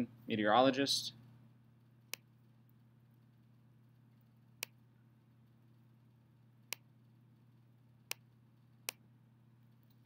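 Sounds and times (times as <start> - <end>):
faint low hum: 0.0 - 10.0
computer mouse clicks: 2.1 - 2.3.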